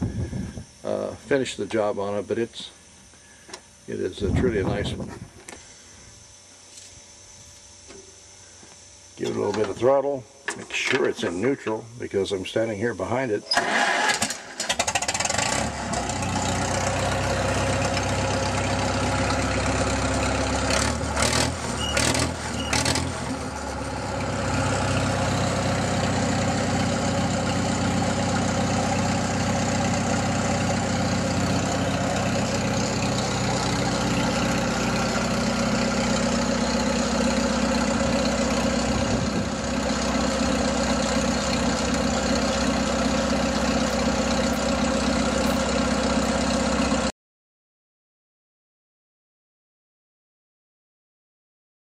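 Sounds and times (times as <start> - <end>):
tractor engine running: 13.5 - 47.1.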